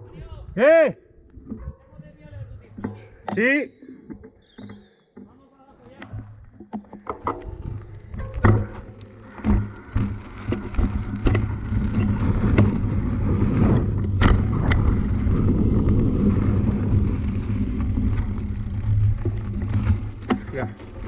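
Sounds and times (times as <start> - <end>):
vehicle rumbling in motion: 7.6 - 21.0.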